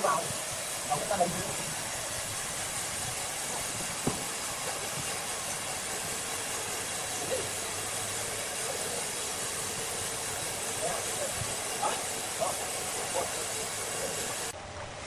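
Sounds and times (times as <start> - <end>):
sawmill machinery hissing: 0.0 - 14.6
sharp knock: 4.0 - 4.3.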